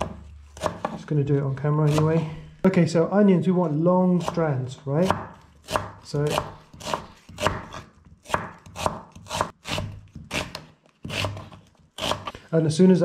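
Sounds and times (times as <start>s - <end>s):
knife chopping on wooden board: 0.0s - 1.1s, 1.8s - 2.4s, 4.2s - 12.4s.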